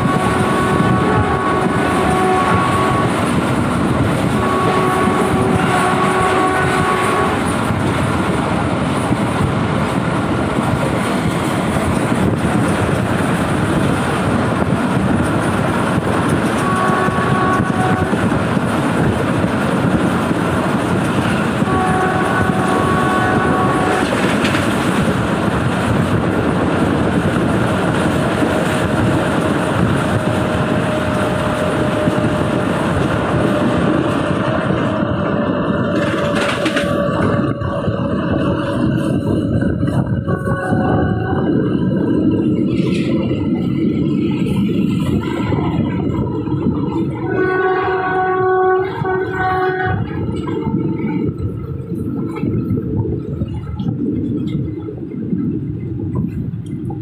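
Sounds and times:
locomotive horn: 0.0s - 7.8s, 16.4s - 18.4s, 21.4s - 24.4s, 29.7s - 38.8s, 39.5s - 41.7s, 46.9s - 51.3s
train rumble and wheel clatter: 0.0s - 57.0s.

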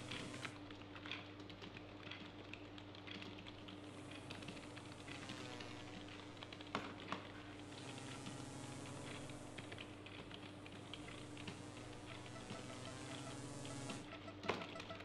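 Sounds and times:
steady low hum: 0.0s - 0.6s, 3.6s - 15.0s.

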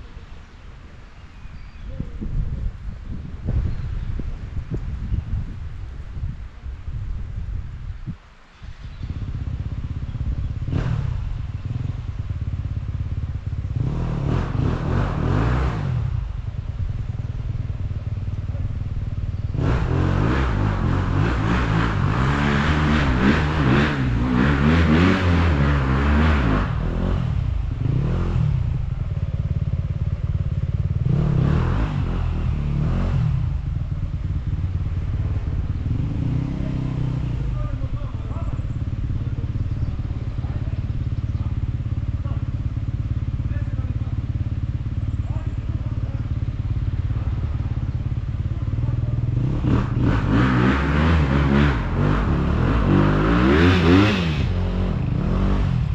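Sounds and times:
dirt bike engine revving: 9.1s - 16.4s, 19.4s - 55.9s.

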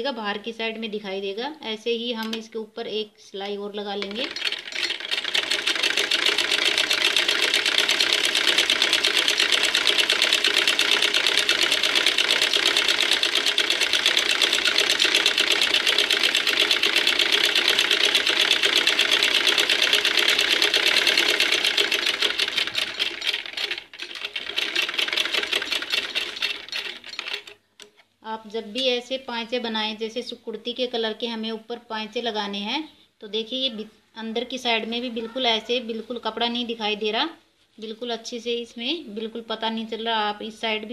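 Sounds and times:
sewing machine stitching: 4.0s - 27.7s.

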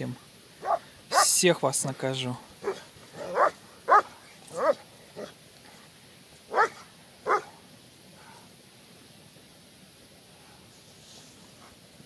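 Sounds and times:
dog barking: 0.6s - 1.4s, 2.6s - 5.3s, 6.5s - 7.5s.

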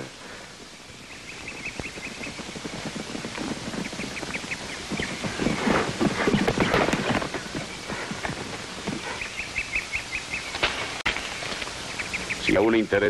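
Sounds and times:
birds chirping: 0.0s - 13.0s
horse hoofbeats on dirt: 1.1s - 9.5s.

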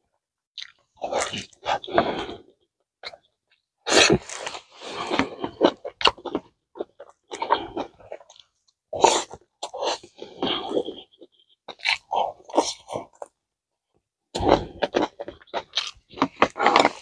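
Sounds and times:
chewing and lip-smacking: 0.6s - 2.0s, 5.0s - 13.3s, 14.4s - 17.0s.

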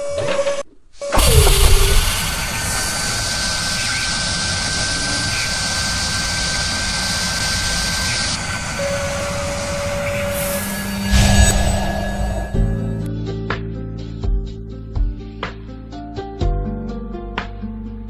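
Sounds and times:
thin high whine: 0.0s - 13.1s
jet-like whooshing: 1.1s - 13.1s
low steady tones: 1.2s - 13.1s.

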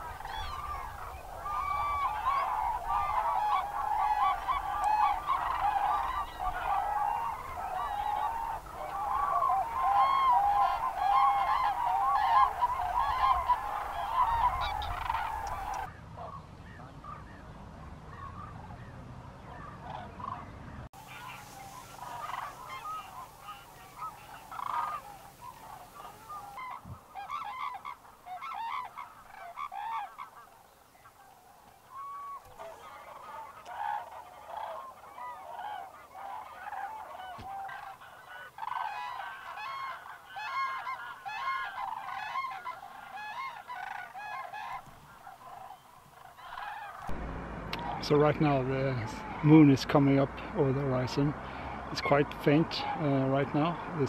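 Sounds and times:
cranes calling: 0.0s - 17.4s, 21.0s - 52.2s.

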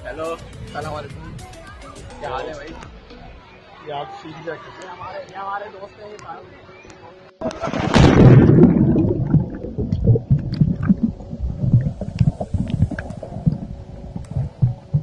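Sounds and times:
low underwater rumbling: 7.4s - 15.0s
underwater bubbles splashing: 7.4s - 15.0s.

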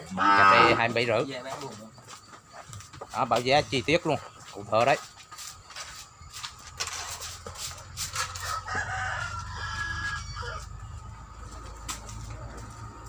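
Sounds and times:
rooster crowing: 8.2s - 11.1s.

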